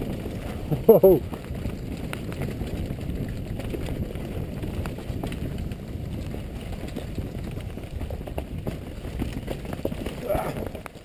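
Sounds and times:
bike clicks and rattles on rocks: 0.0s - 11.0s
wind rumble on microphone: 0.0s - 11.0s.

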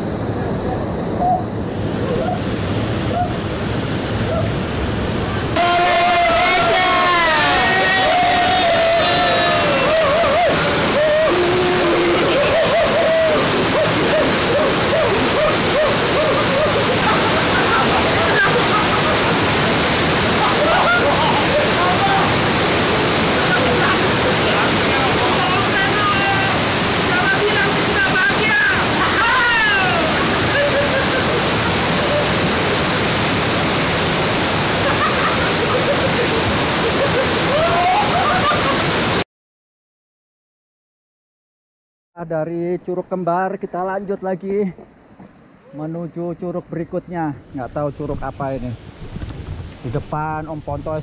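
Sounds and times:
waterfall rushing: 0.0s - 39.2s.

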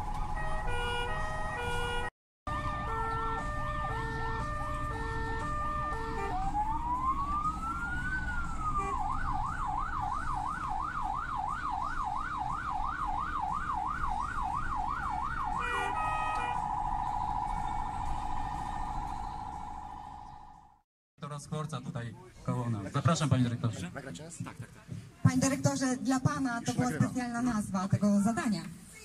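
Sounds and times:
ambulance siren: 0.0s - 20.8s
low road noise: 0.0s - 29.0s
horn blasts: 0.4s - 6.5s, 8.8s - 9.1s, 15.5s - 20.5s.

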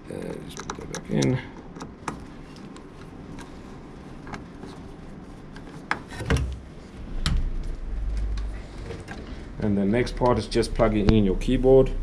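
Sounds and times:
low handling rumble: 7.0s - 12.0s.

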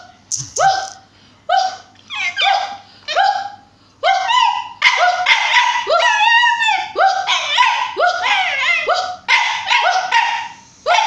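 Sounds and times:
person imitating dog barking: 0.3s - 5.2s
puppy barking and yipping: 1.6s - 11.0s.

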